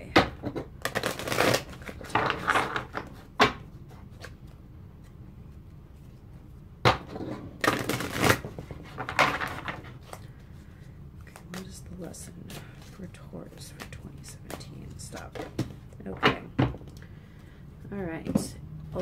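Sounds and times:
cards being shuffled: 7.6 - 10.6.

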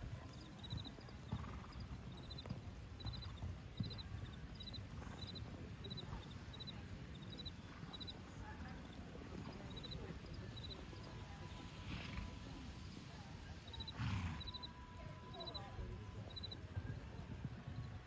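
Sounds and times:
horse hooves thudding on sand: 0.0 - 6.7.

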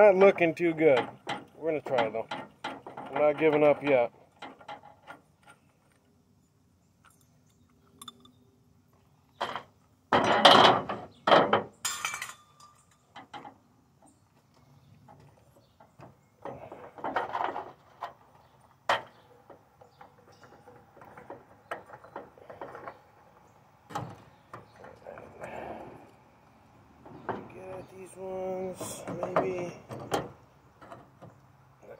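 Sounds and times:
metal parts clinking and scraping: 11.8 - 13.5.

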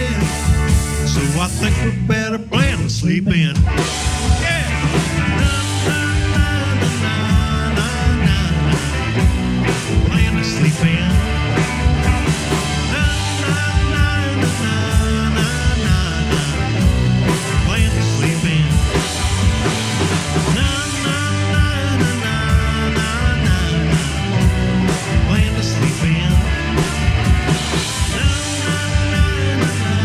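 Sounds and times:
bass guitar: 0.0 - 30.0
electric guitars: 0.0 - 30.0
steady drum beat: 0.0 - 30.0.

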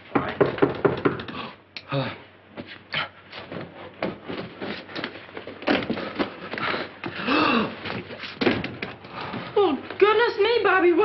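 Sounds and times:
footsteps: 2.5 - 10.3
clothes rustling: 2.5 - 10.6.

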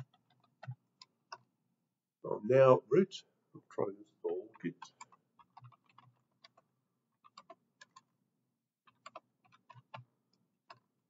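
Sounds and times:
computer keyboard typing: 0.0 - 1.5, 4.5 - 8.2, 8.8 - 10.9.

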